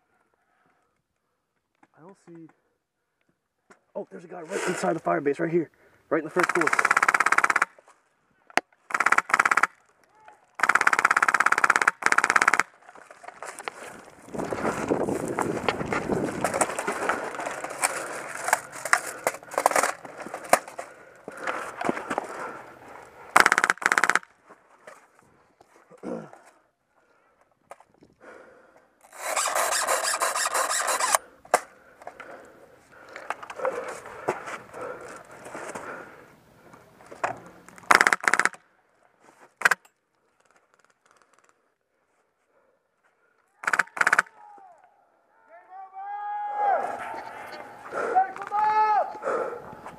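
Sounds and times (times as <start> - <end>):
airsoft gun full-auto bursts: 6.3 - 7.8, 8.9 - 9.8, 10.6 - 12.8, 23.3 - 24.3, 29.1 - 31.2, 37.8 - 38.6, 43.6 - 44.3
scuffing and rustling of movement: 13.2 - 19.1
gear rattling: 29.0 - 31.2.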